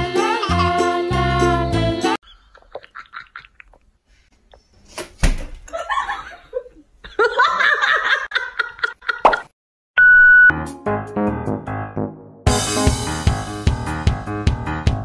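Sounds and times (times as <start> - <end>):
person laughing: 0.3 - 0.9, 2.2 - 3.8, 5.7 - 9.5.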